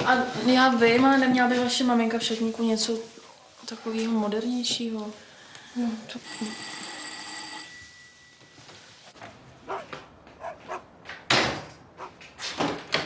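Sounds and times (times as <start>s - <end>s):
dog barking: 9.2s - 10.9s.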